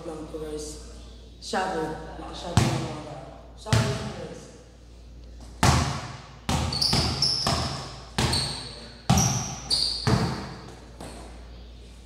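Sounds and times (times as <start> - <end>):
basketball bouncing on tile floor: 5.6 - 8.5, 9.1 - 10.8
shoe squeak: 6.6 - 11.2.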